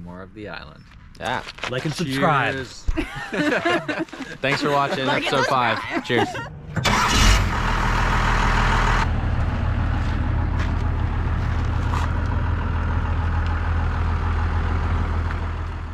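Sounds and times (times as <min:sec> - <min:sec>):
vehicle engine idling: 0:05.5 - 0:15.9.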